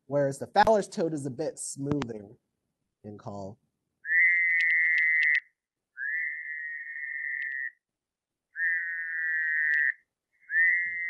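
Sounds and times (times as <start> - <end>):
toad calls buzzing trills: 4.0 - 7.8, 8.5 - 11.0.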